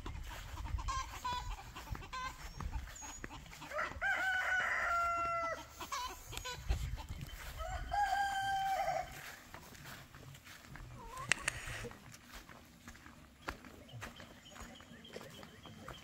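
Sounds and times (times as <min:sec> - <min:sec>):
chickens clucking softly: 0:00.0 - 0:16.0
rooster crowing: 0:03.6 - 0:05.7, 0:07.5 - 0:09.4.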